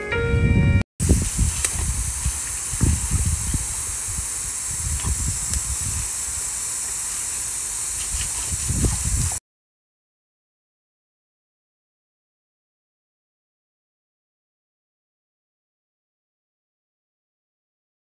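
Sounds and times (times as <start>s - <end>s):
low rumbling: 0.2s - 6.6s
high hiss: 1.0s - 9.4s.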